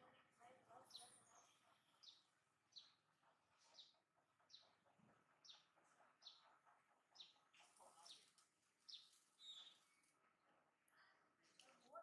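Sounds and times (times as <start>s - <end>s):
bird chirping faintly: 7.1s - 10.3s.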